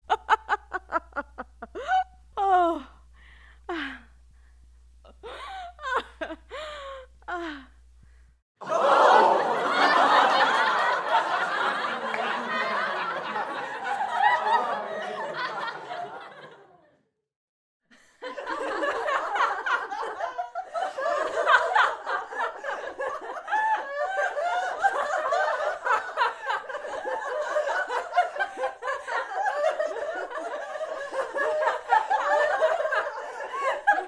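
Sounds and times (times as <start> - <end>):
group of people laughing: 0.1 - 2.6, 8.6 - 17.0, 17.9 - 34.0.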